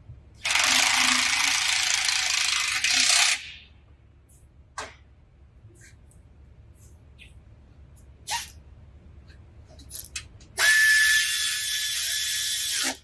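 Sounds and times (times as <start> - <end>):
air ratchet whine: 0.4 - 3.5, 10.6 - 13.0.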